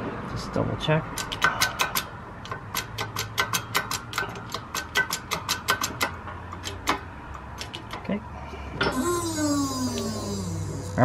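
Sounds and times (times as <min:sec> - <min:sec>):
rapid metallic clicking: 0:01.1 - 0:08.0.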